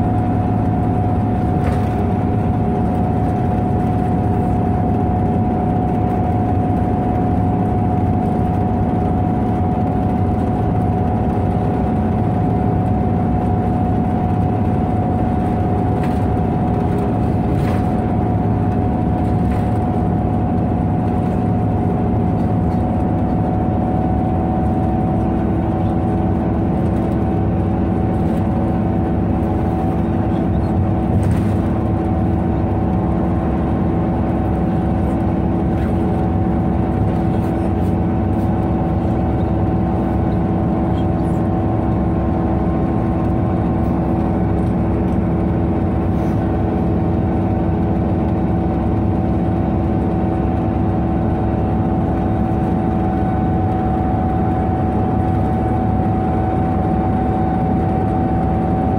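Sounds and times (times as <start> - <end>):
bus diesel engine droning: 0.0 - 58.9.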